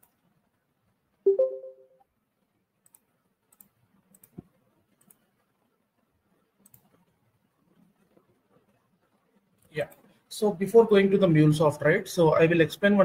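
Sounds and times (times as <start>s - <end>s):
short two-tone sound: 1.3s - 2.0s
faint computer clicks: 2.8s - 5.4s, 6.6s - 10.2s.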